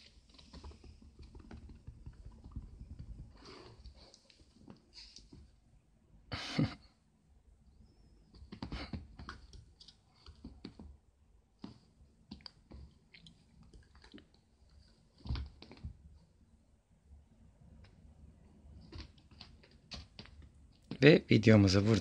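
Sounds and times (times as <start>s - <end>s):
rope handles clicking and tapping: 0.0s - 5.4s, 8.3s - 11.0s, 18.8s - 21.0s.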